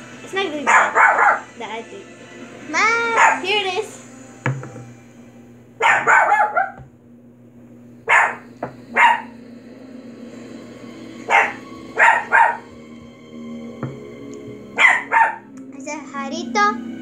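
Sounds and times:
dog barking: 0:00.6 - 0:01.5, 0:03.0 - 0:03.5, 0:05.8 - 0:06.9, 0:08.0 - 0:09.4, 0:11.2 - 0:12.7, 0:14.8 - 0:15.5.

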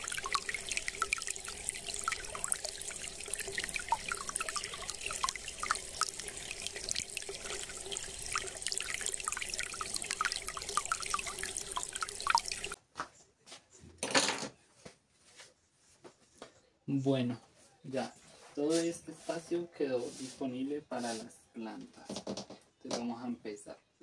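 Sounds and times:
water trickling and dripping: 0:00.0 - 0:12.8.

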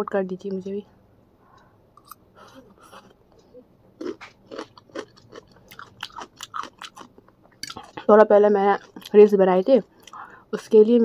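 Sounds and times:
noodles being chewed: 0:04.0 - 0:08.1, 0:08.7 - 0:09.2.

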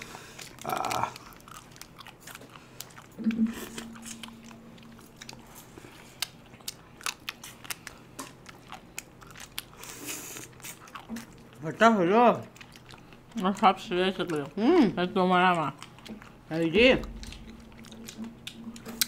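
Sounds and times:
crunching ice cream cone: 0:00.0 - 0:03.2, 0:03.9 - 0:11.8
chewing: 0:00.0 - 0:19.0
person humming: 0:00.6 - 0:01.2.

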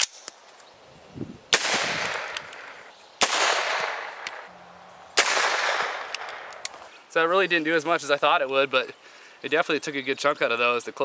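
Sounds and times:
rifle shots with echo: 0:01.5 - 0:04.5, 0:05.2 - 0:06.6.

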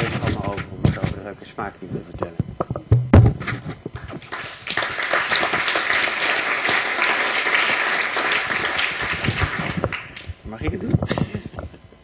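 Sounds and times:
audience applauding: 0:04.0 - 0:10.3.

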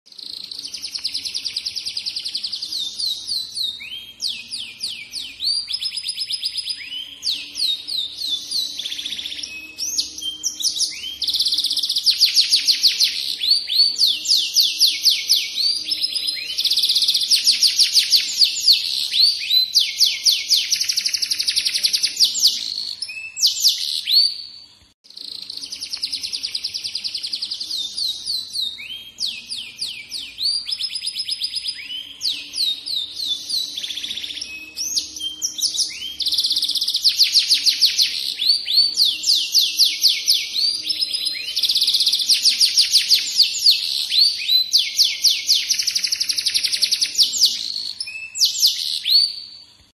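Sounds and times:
canary singing trills: 0:00.1 - 0:49.9.

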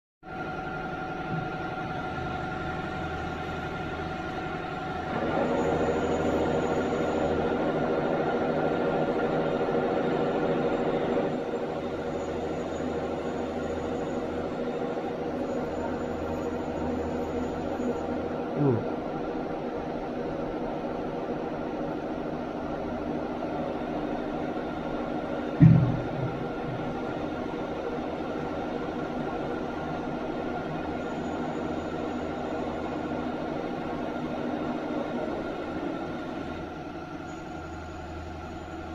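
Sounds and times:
faint steady tones: 0:00.3 - 0:38.9
testing machine drive humming: 0:23.7 - 0:38.9.

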